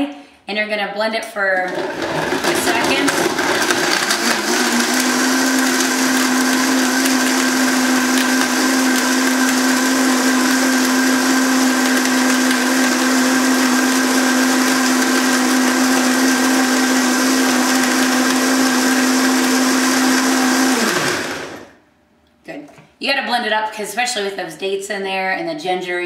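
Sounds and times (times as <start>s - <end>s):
blender running: 1.6s - 21.8s.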